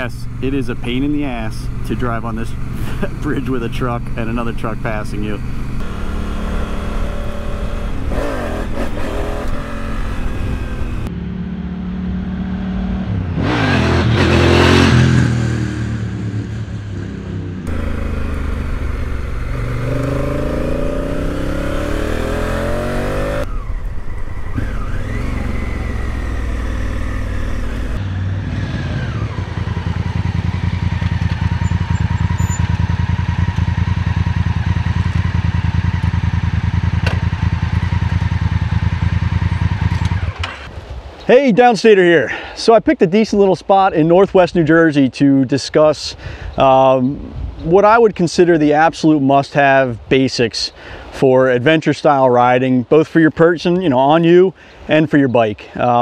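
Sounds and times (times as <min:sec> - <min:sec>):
motorcycle engine idling: 0:00.0 - 0:08.1, 0:17.7 - 0:21.4, 0:29.5 - 0:40.1
motorcycle engine accelerating: 0:00.0 - 0:40.7.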